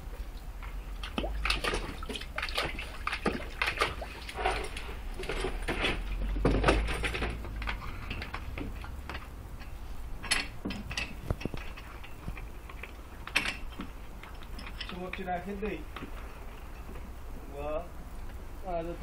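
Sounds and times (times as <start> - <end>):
dog splashing water in bucket: 0.8 - 9.3.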